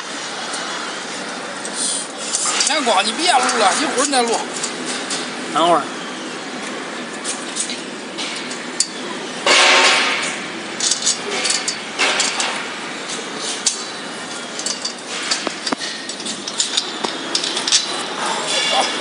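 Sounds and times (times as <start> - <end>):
metal scraping: 2.1 - 5.7, 7.1 - 19.0
metal clamp clinking on fence post: 13.6 - 19.0.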